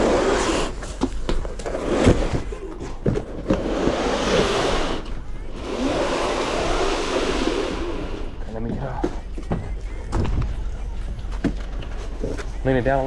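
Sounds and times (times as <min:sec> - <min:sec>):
cardboard box scraping on wood floor: 0:00.0 - 0:08.0.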